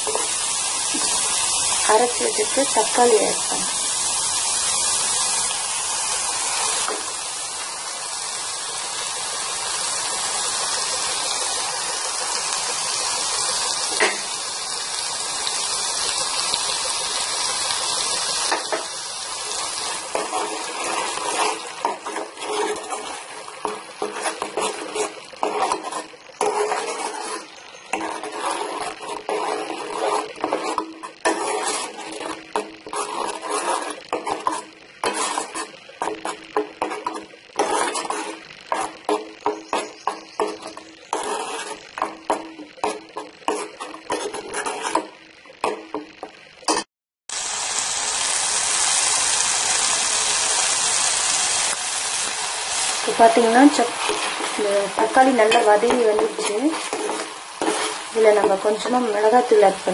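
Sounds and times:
ladle scraping pan: 0:00.0 - 0:01.2, 0:17.9 - 0:46.8, 0:52.1 - 0:59.9
paste sizzling in hot pan: 0:00.0 - 0:59.9.

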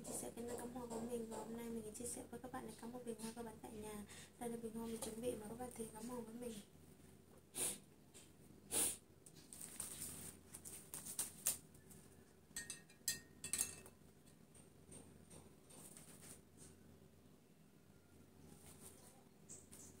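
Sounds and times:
flower rustling: 0:09.4 - 0:11.6.

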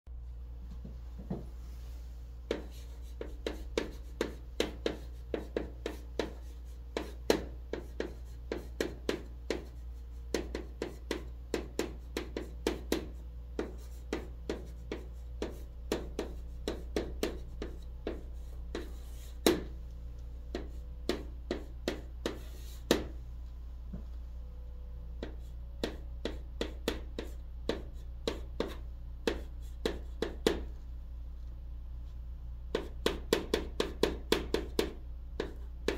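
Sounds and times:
chalk writing on chalkboard: 0:02.5 - 0:19.8, 0:20.5 - 0:23.2, 0:25.2 - 0:30.7, 0:32.7 - 0:35.9.

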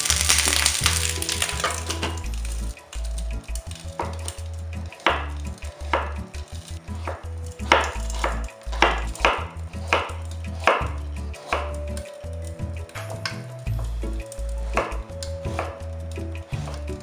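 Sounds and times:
knife chopping on wooden board: 0:03.9 - 0:12.1, 0:14.7 - 0:15.9.

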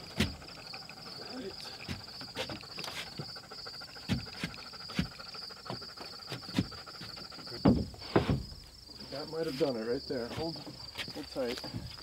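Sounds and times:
crickets chirring: 0:00.0 - 0:12.0
wooden knocks and thumps: 0:00.1 - 0:00.5, 0:04.0 - 0:08.7, 0:10.3 - 0:12.0.

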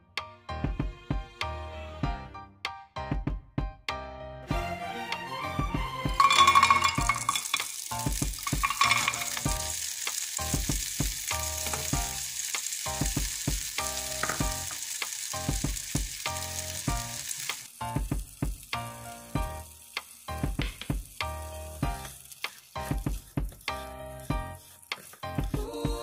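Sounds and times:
blueberries rattling in frying pan: 0:06.2 - 0:25.3
steady hiss: 0:06.2 - 0:26.0.

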